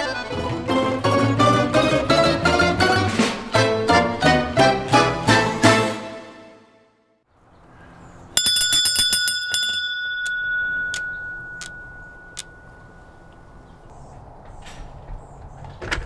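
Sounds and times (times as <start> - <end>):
porch bell ringing: 8.3 - 13.7.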